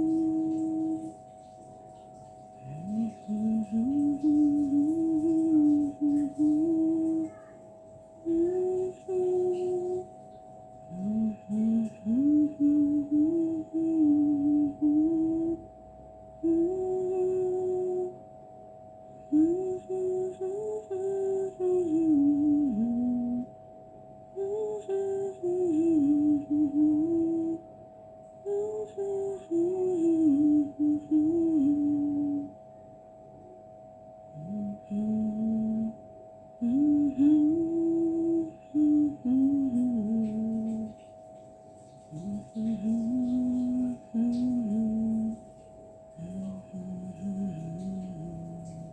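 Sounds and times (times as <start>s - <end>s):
person humming: 0.0s - 1.1s, 2.6s - 7.6s, 8.3s - 10.1s, 10.9s - 15.6s, 16.4s - 18.2s, 19.2s - 23.5s, 24.4s - 27.6s, 28.5s - 32.5s, 34.4s - 36.0s, 36.6s - 41.0s, 42.1s - 45.4s, 46.2s - 48.9s
faint steady drone: 0.0s - 48.9s.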